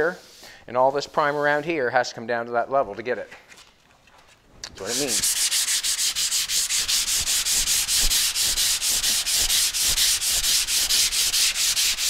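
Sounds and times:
sandpaper rubbing back and forth: 0:04.8 - 0:12.0.

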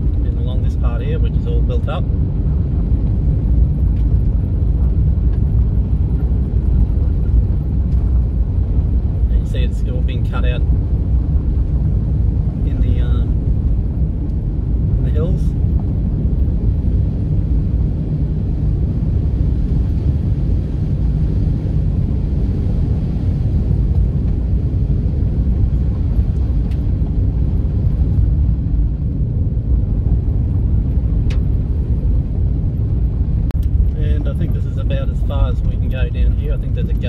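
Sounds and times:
vehicle engine and tyres rumbling: 0:00.0 - 0:37.0.

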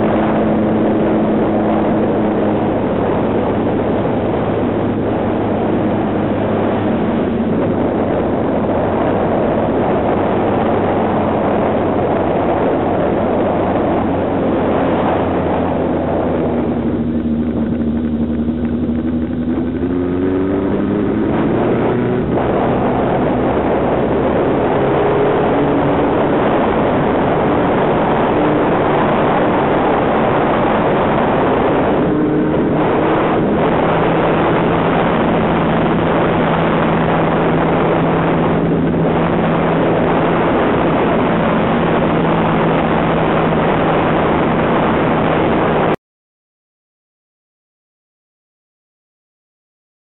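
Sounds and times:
wind rushing over microphone: 0:00.0 - 0:46.0
race car engine running: 0:15.3 - 0:44.3.

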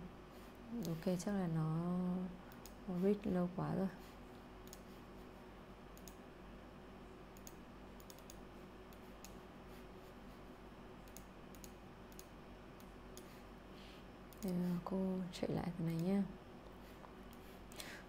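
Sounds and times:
low steady hum: 0:00.0 - 0:18.0
computer mouse clicks: 0:02.5 - 0:02.8, 0:04.6 - 0:05.0, 0:05.9 - 0:06.2, 0:07.3 - 0:09.4, 0:11.0 - 0:13.4, 0:14.3 - 0:14.6.

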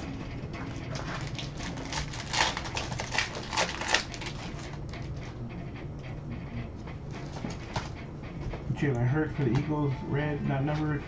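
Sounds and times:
trading cards clicking and rustling: 0:00.5 - 0:05.4.

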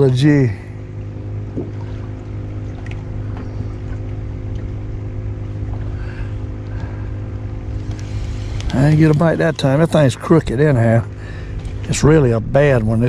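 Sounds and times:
boat motor running: 0:00.0 - 0:13.0.

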